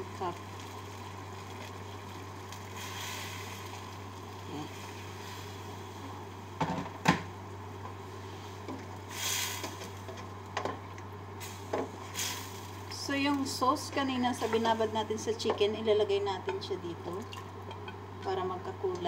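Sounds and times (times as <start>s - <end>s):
steady low hum: 0.0s - 19.0s
stirring hiss: 0.0s - 19.0s
water poured into pot: 0.2s - 5.7s.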